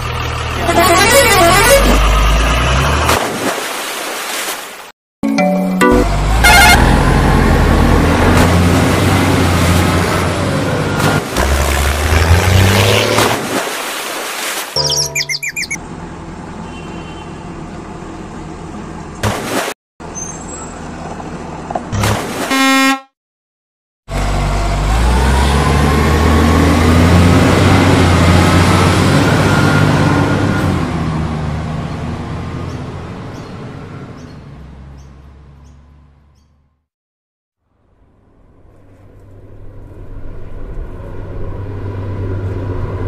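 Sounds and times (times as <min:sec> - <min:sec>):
engine hum: 0:00.0 - 0:04.2, 0:05.8 - 0:14.2, 0:14.8 - 0:22.4, 0:24.1 - 0:36.8, 0:37.6 - 0:43.0
truck horn toot: 0:00.6 - 0:02.2, 0:05.8 - 0:07.1, 0:16.6 - 0:17.4, 0:22.5 - 0:23.2
truck engine rising in pitch: 0:05.2 - 0:13.2, 0:24.1 - 0:36.4.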